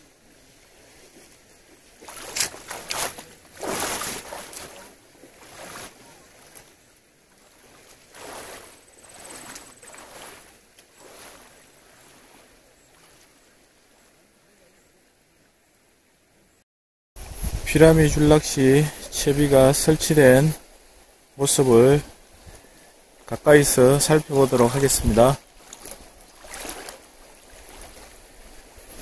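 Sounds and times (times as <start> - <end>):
stream current rushing: 0.0 - 14.6, 17.2 - 29.0
water splashing from wading: 0.3 - 13.9, 22.1 - 29.0.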